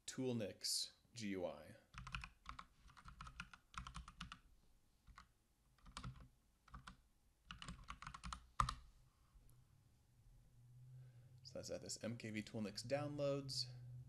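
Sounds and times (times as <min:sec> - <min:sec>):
typing on a keyboard: 0:01.9 - 0:04.4, 0:05.1 - 0:08.8.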